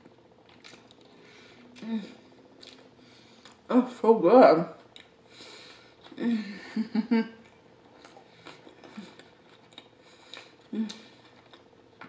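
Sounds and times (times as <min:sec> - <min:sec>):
hummed mm sounds: 0:00.0 - 0:03.7, 0:04.8 - 0:12.0
person chewing: 0:00.0 - 0:03.7, 0:04.8 - 0:06.3, 0:07.4 - 0:12.0.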